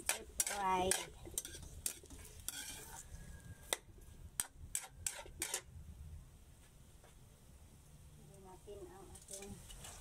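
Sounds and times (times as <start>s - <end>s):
metal spatula scraping a wok: 0.0s - 3.8s, 4.4s - 5.7s.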